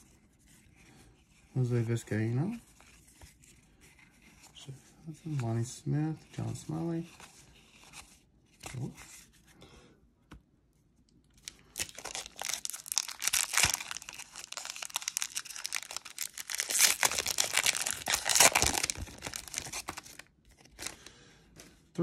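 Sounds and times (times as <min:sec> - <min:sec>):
foil wrapper crinkling and tearing: 0:11.4 - 0:21.1.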